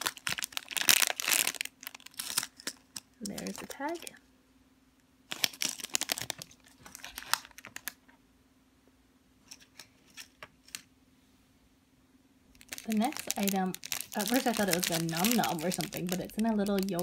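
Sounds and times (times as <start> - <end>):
plastic bag crinkling: 0.0 - 4.2, 5.3 - 8.0, 12.5 - 17.0.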